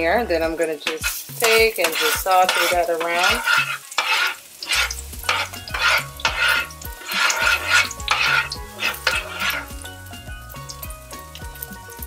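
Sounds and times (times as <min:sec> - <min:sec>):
faint background music: 0:00.0 - 0:12.0
garlic sizzling in a frying pan: 0:00.0 - 0:12.0
spatula scraping a pan: 0:00.4 - 0:09.9.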